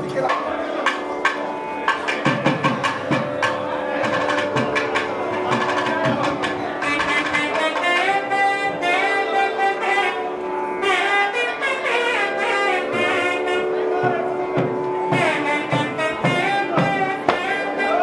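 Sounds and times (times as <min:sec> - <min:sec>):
drum strokes: 0:00.0 - 0:08.5, 0:12.9 - 0:18.0
double-reed wind melody: 0:00.5 - 0:18.0.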